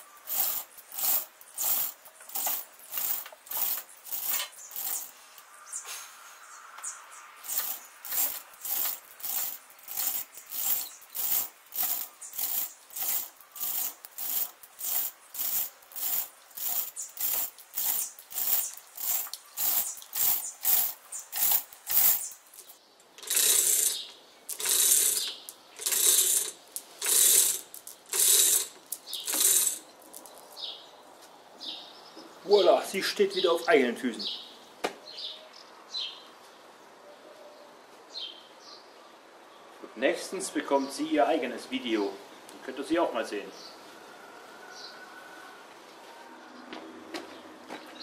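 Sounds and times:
chain hoist ratchet clicking: 0:00.0 - 0:05.2, 0:07.4 - 0:30.2
chain rattling: 0:00.2 - 0:05.1, 0:07.4 - 0:30.6.

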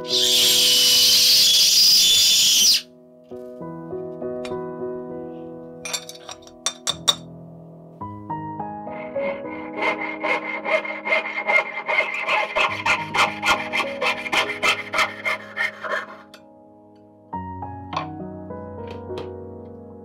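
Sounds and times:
saw cutting metal rod: 0:00.0 - 0:02.6, 0:08.9 - 0:16.4.

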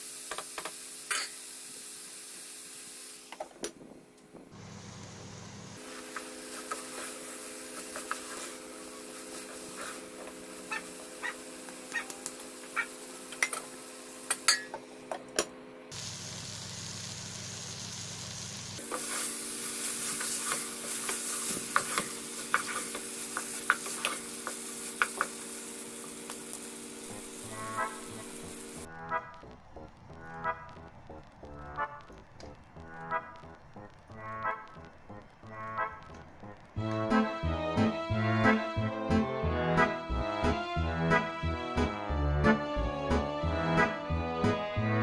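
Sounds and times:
food sizzling in a pan: 0:00.0 - 0:03.4, 0:04.6 - 0:14.7, 0:15.9 - 0:31.6
spoon scraping a pan: 0:18.9 - 0:19.4, 0:20.0 - 0:25.4.

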